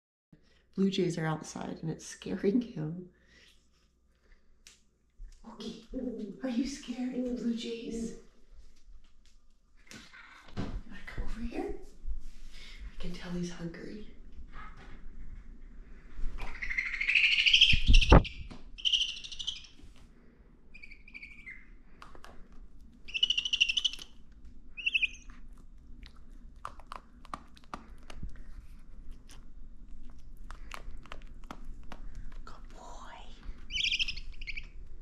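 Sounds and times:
owl buzzy calls: 16.5s - 19.8s, 20.7s - 21.8s, 23.0s - 24.2s, 24.8s - 25.3s, 33.7s - 34.8s.

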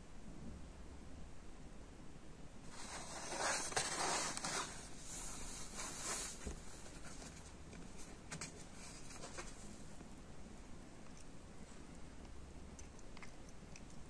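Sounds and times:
cardboard box rustling and scraping: 2.7s - 9.6s.

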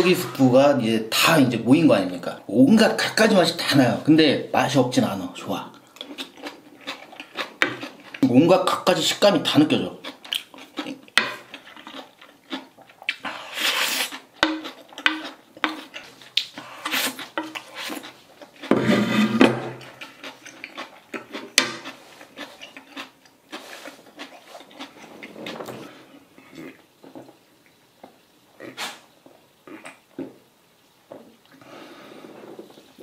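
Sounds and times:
chewing: 5.7s - 8.3s, 9.8s - 18.7s, 19.8s - 30.0s.

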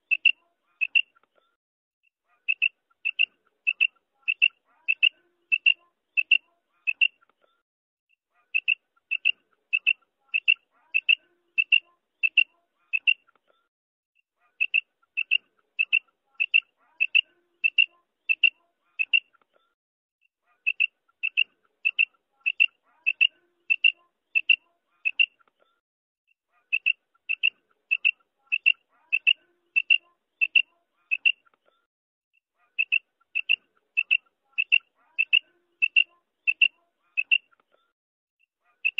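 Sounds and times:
quail calling: 0.0s - 1.2s, 2.3s - 7.2s, 8.4s - 13.3s, 14.4s - 19.3s, 20.6s - 25.4s, 26.6s - 31.5s, 32.6s - 37.6s, 38.6s - 38.9s.

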